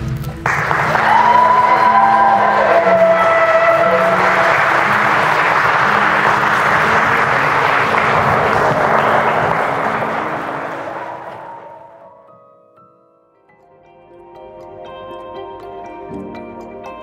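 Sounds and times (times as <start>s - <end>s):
people applauding: 0.0s - 12.2s.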